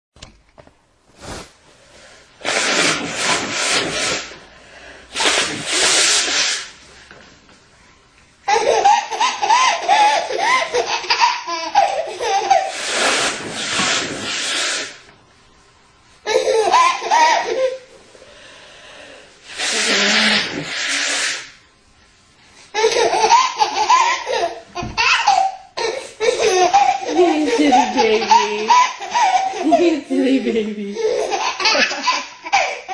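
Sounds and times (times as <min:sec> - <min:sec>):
woman blowing her nose: 0:02.4 - 0:06.9, 0:12.6 - 0:15.1, 0:19.4 - 0:21.6, 0:25.8 - 0:30.0
baby giggling: 0:08.5 - 0:12.9, 0:16.3 - 0:17.9, 0:22.8 - 0:32.9.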